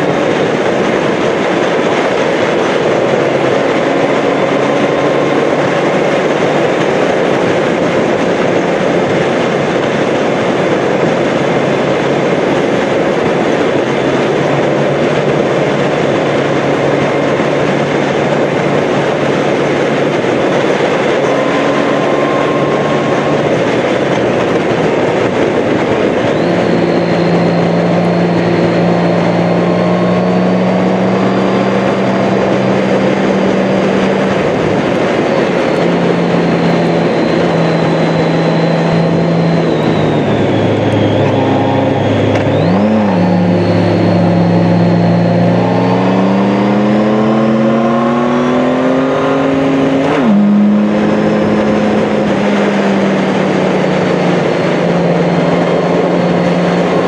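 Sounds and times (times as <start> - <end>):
motorcycle engine drone: 0.0 - 57.0
wind rush and road noise: 0.0 - 57.0
thin high whine: 12.8 - 57.0.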